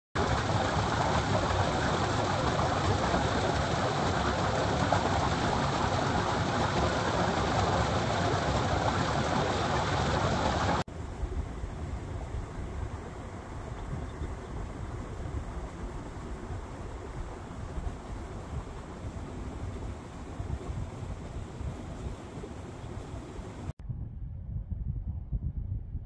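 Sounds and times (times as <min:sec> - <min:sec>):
low rumble: 0:23.7 - 0:26.0.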